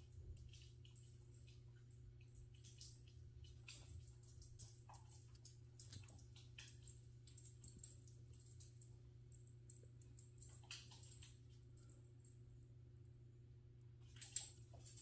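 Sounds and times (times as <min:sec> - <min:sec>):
puppy claws clicking on wood floor: 0:00.2 - 0:11.9.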